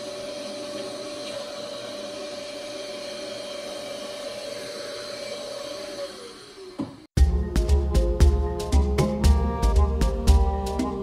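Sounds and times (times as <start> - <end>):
vacuum cleaner whining: 0.0 - 7.2.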